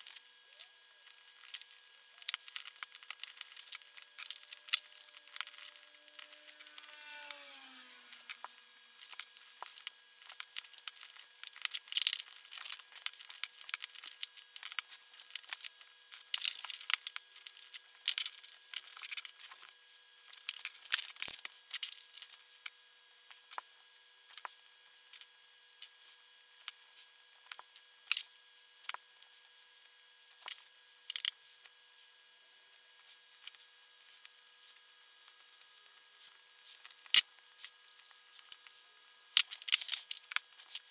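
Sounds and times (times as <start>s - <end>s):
plastic bricks clicking together: 39.4s - 40.7s.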